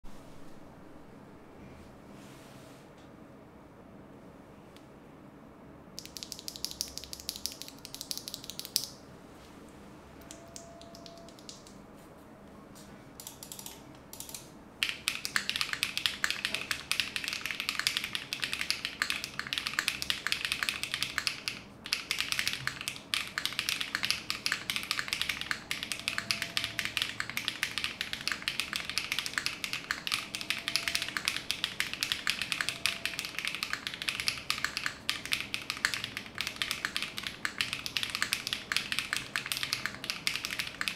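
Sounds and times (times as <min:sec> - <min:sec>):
fast mechanical keyboard typing: 0:06.0 - 0:09.0, 0:10.3 - 0:11.7, 0:13.2 - 0:40.9.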